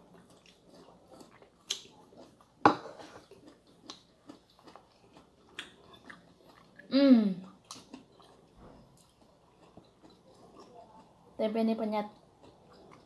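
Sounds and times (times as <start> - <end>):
quiet chewing: 0.0 - 11.4, 12.0 - 13.0.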